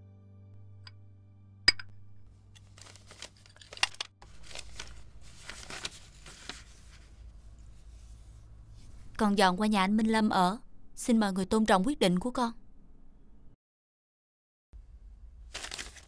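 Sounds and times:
paper rustling: 0:02.5 - 0:08.9, 0:15.5 - 0:16.0.

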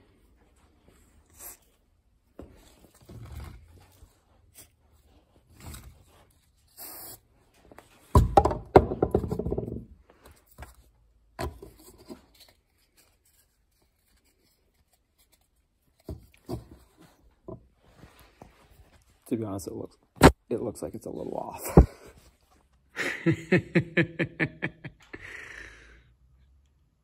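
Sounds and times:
knocks on wooden workbench: 0:08.2 - 0:09.8.

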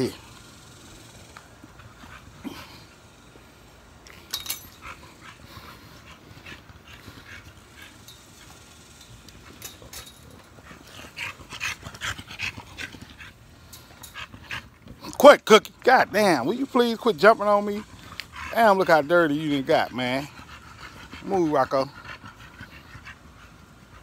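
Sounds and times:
dogs breathing: 0:00.0 - 0:24.0.

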